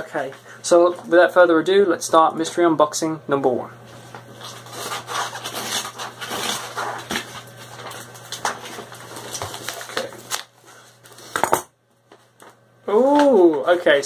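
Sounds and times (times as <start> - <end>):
package wrapping crinkling: 4.3 - 11.3.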